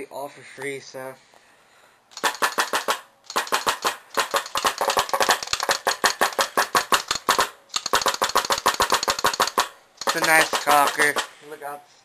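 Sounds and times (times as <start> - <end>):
paintball marker rapid pops: 2.2 - 11.4.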